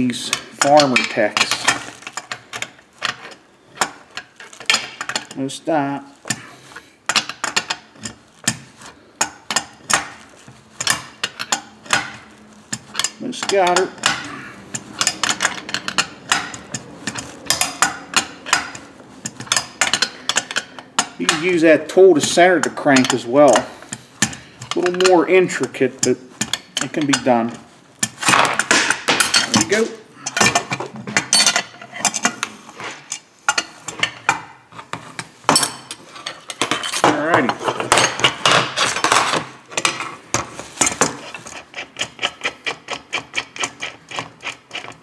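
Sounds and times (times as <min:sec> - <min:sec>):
hand tool tapping metal: 0:10.8 - 0:21.6, 0:22.2 - 0:45.0.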